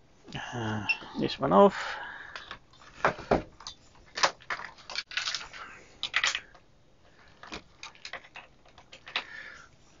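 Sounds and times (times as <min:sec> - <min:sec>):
clicks and knocks of handling: 0:07.3 - 0:09.4.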